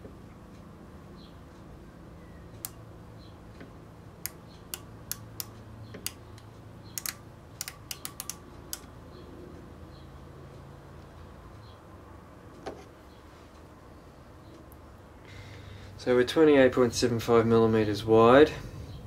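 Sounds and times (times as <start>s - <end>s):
micrometer clicking: 2.5s - 9.2s.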